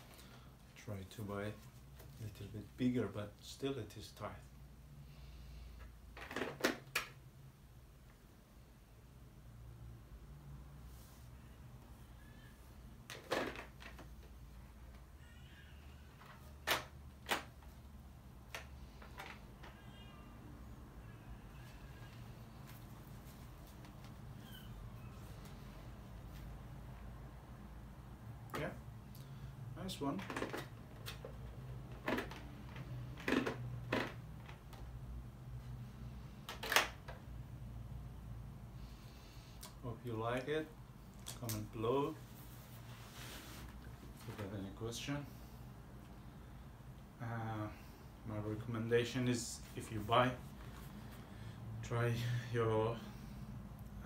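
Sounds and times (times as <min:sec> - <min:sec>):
helmet scraping: 0:42.2 - 0:44.2.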